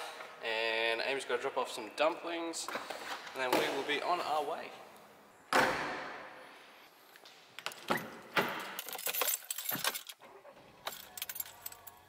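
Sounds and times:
car keys jangling and clicking: 7.8 - 12.0.

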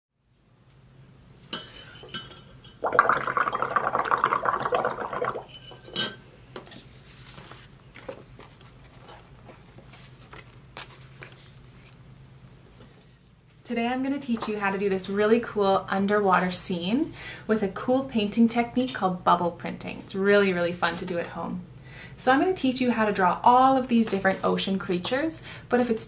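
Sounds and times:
bubbling through a straw: 2.8 - 5.6.

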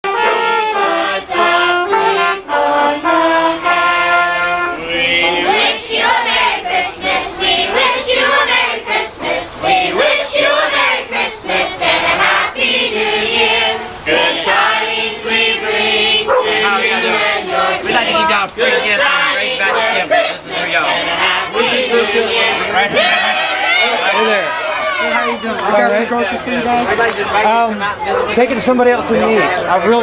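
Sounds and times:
trumpets playing held notes: 0.0 - 6.8.

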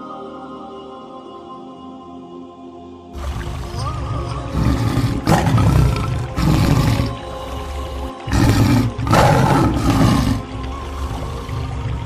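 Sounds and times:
background music: 0.0 - 12.0
lion roaring: 3.2 - 12.0.

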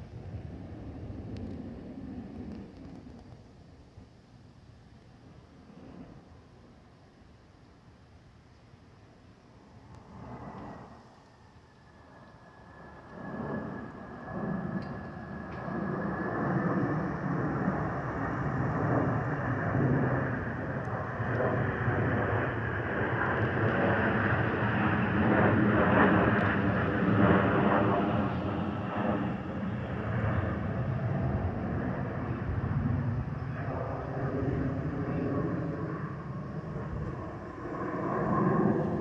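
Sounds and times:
jet airliner roar overhead: 0.0 - 39.0.

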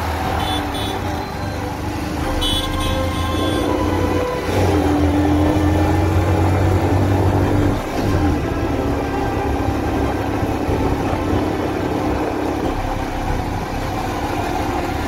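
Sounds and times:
wind rushing over microphone: 6.1 - 12.9.

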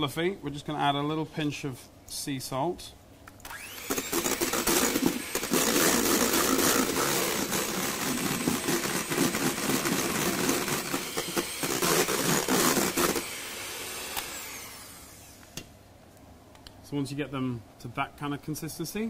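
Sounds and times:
electric hand mixer running: 3.5 - 15.4.

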